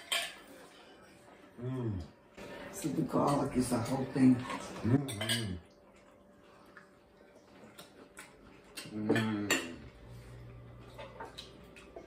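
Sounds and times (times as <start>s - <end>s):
cutlery clinking on plates: 0.0s - 1.0s, 3.1s - 5.6s.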